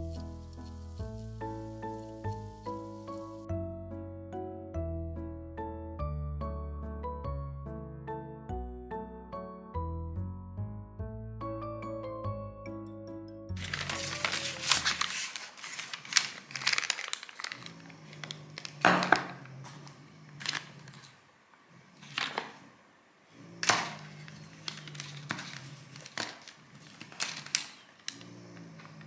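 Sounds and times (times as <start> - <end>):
paper receipts rustling: 0.0 - 3.5, 13.6 - 21.2, 23.9 - 29.0.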